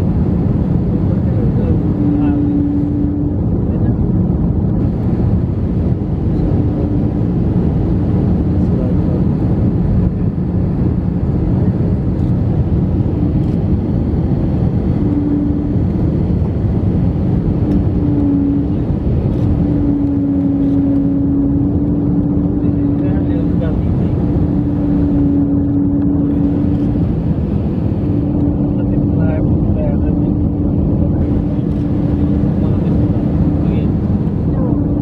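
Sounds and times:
jet engine and airflow rush: 0.0 - 35.0
cabin hum: 10.2 - 35.0.

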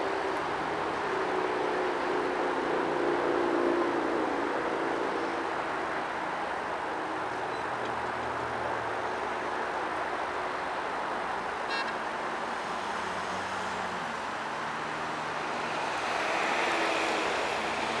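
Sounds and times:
road traffic drone: 0.0 - 18.0
car passing: 12.4 - 18.0.

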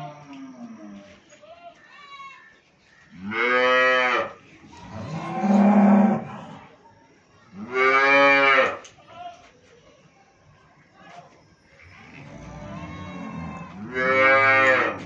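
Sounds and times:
calf mooing: 12.2 - 15.0.

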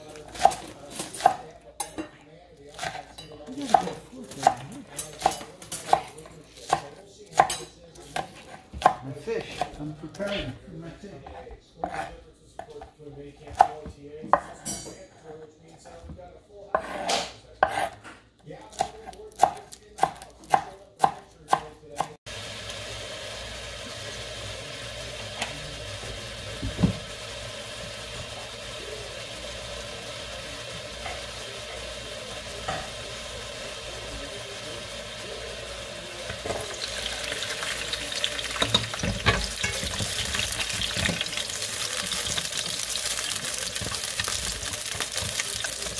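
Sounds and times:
knife chopping on wooden board: 5.2 - 9.7, 16.8 - 18.0, 18.8 - 22.1
garlic sizzling in hot oil: 22.3 - 45.9.

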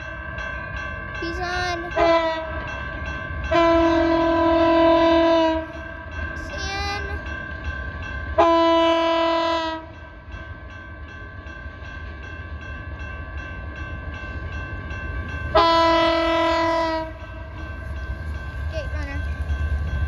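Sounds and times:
crossing warning bell ringing: 0.0 - 20.0
diesel locomotive horn blasts: 2.0 - 2.6, 3.5 - 5.7, 8.4 - 10.0, 15.5 - 17.2.

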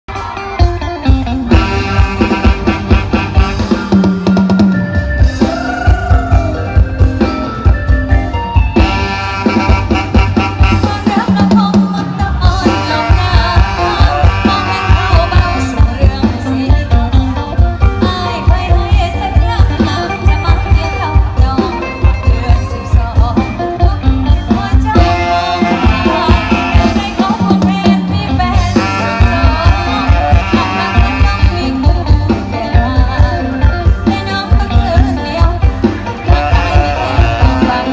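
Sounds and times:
live band playing: 0.1 - 37.9
woman singing: 10.6 - 37.9.

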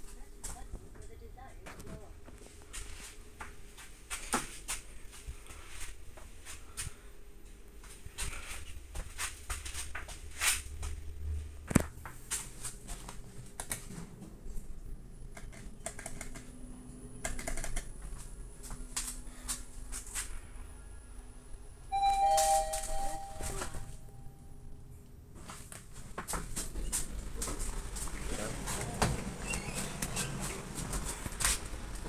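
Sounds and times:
elevator car humming: 12.6 - 25.4, 26.4 - 32.0.

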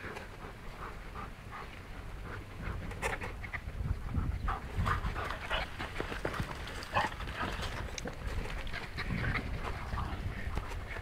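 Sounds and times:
dog panting: 0.0 - 3.3.

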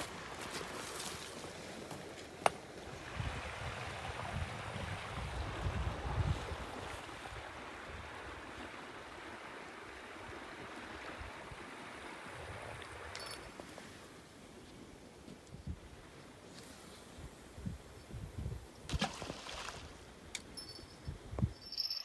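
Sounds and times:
wind hissing through grass: 0.0 - 22.0
wind buffeting microphone: 2.9 - 9.2, 17.1 - 20.0, 21.0 - 21.6.

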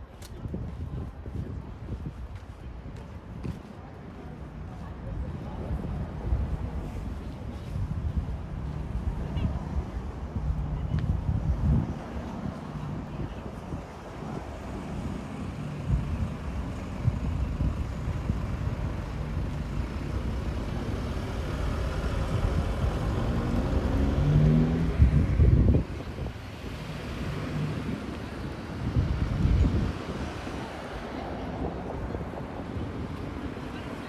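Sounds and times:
vehicle engine passing by: 19.2 - 30.8.

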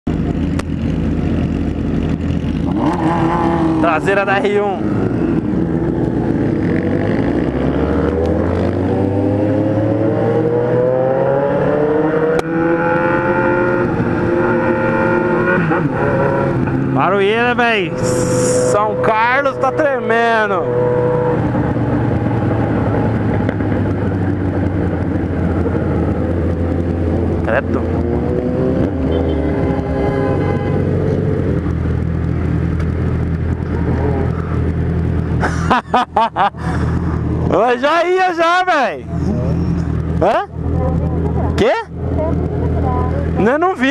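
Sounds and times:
motorcycle engine accelerating: 0.1 - 37.8
motorcycle engine running: 20.8 - 35.5.

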